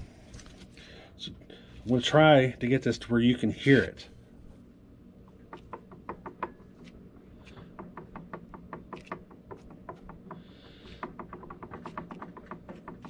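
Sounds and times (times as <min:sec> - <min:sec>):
faint clicking and knocking: 0:05.2 - 0:13.0.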